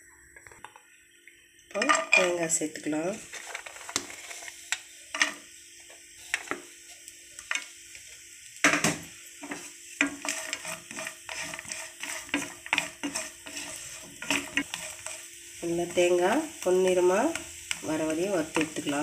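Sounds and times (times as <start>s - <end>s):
food sizzling in oil: 0.0s - 19.0s
wooden spatula scraping pan: 3.1s - 5.4s, 9.4s - 15.4s.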